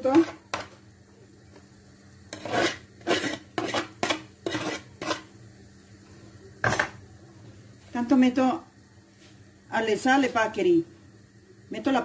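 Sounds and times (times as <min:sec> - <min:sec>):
utensil scraping a pan: 0:02.3 - 0:05.4.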